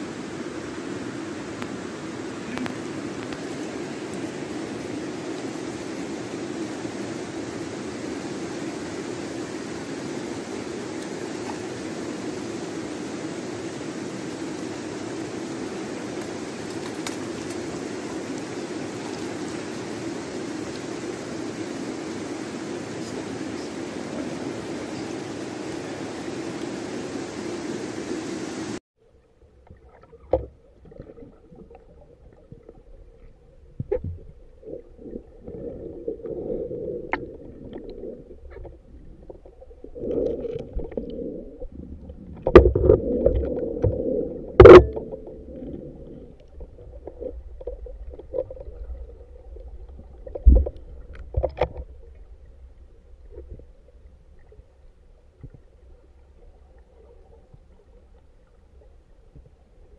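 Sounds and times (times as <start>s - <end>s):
muffled underwater rumble: 29.0s - 59.9s.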